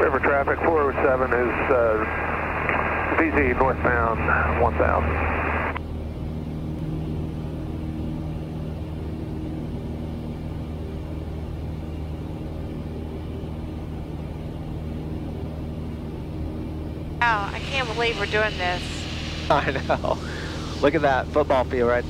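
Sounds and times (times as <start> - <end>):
radio voice: 0.0 - 5.8, 19.5 - 22.0
propeller plane engine drone: 0.0 - 22.0.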